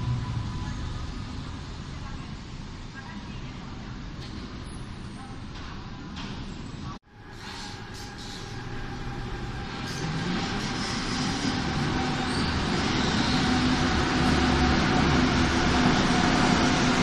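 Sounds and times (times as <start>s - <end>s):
subway train pulling out: 0.0s - 17.0s.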